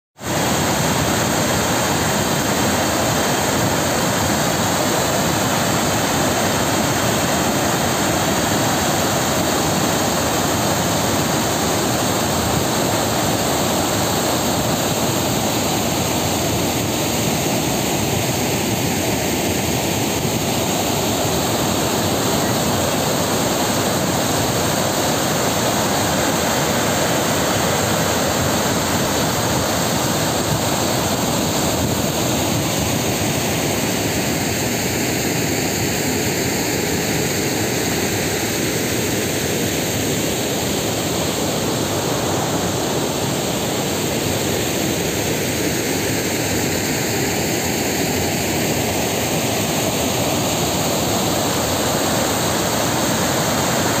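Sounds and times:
water crashing over a spillway: 0:00.2 - 0:54.0.

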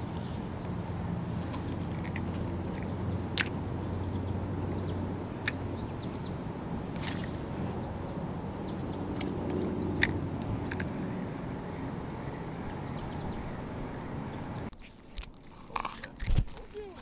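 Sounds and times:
low engine-like hum: 0:00.0 - 0:14.7
fishing rod swish: 0:06.9 - 0:07.6.

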